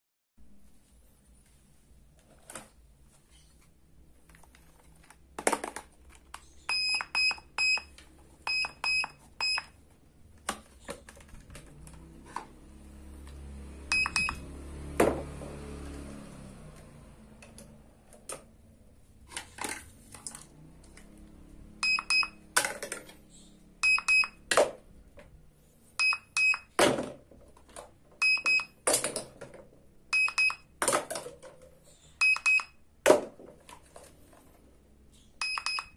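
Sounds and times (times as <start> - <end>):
toy scanner electronic beeps: 6.6 - 9.8, 13.9 - 14.4, 21.8 - 22.5, 23.8 - 24.5, 26.0 - 26.8, 28.2 - 28.8, 30.1 - 30.8, 32.1 - 32.8, 35.4 - 35.9.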